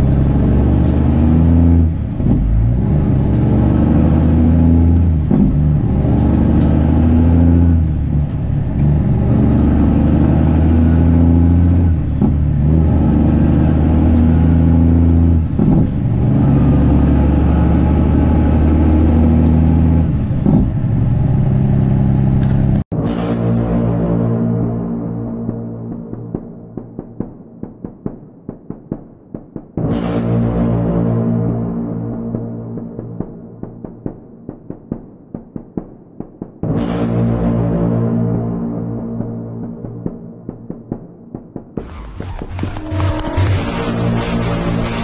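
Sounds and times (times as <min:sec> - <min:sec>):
diesel truck engine accelerating: 0:00.0 - 0:26.3, 0:41.8 - 0:45.0.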